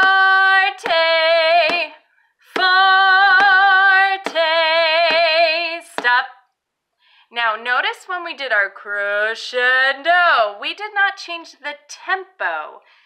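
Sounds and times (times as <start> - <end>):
sharp thumps keeping a beat: 0.0 - 6.3
woman singing with vibrato: 0.0 - 6.4, 7.3 - 12.8.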